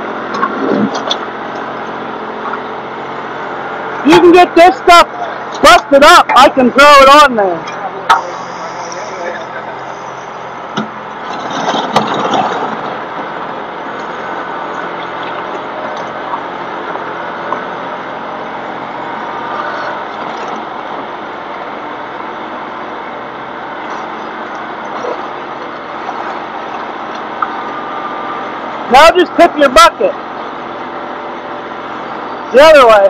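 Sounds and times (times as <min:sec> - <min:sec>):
loader bucket clattering: 0:00.0 - 0:03.9, 0:10.6 - 0:28.8
tractor engine running: 0:00.0 - 0:33.0.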